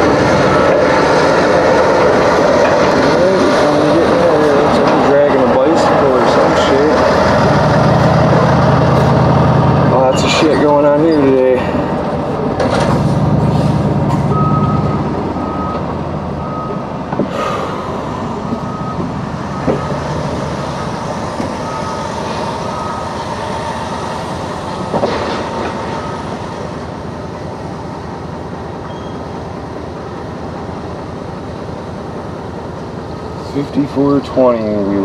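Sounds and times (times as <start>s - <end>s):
reversing alarm beeping: 0.0s - 1.1s, 14.3s - 25.0s, 25.8s - 26.8s, 28.8s - 29.6s
truck engine and cab noise: 0.0s - 35.0s.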